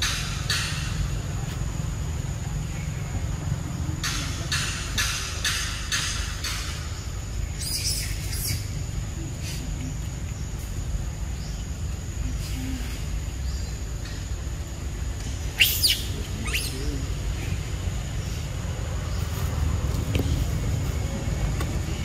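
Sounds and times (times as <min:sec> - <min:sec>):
birds chirping: 0:00.0 - 0:22.0
sharp downward-sweeping bird calls: 0:15.5 - 0:16.8.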